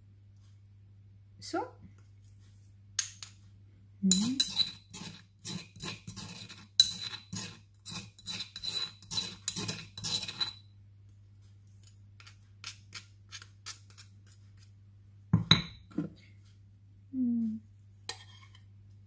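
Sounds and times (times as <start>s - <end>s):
metal spoon scraping stone pestle: 4.1s - 10.6s, 11.8s - 14.7s, 18.1s - 18.6s.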